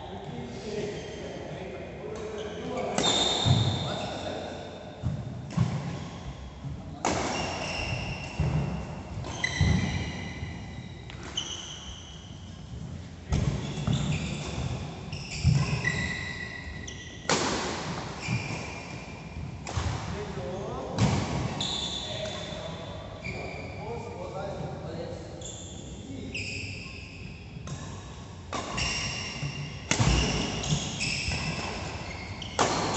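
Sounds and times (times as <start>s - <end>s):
shoes squeaking on court: 2.2s - 4.3s, 7.3s - 17.3s, 21.5s - 24.0s, 25.4s - 27.4s, 28.6s - 32.9s
racket hitting shuttlecock: 7.0s - 10.2s, 17.2s - 18.9s, 19.6s - 20.2s, 27.6s - 32.9s.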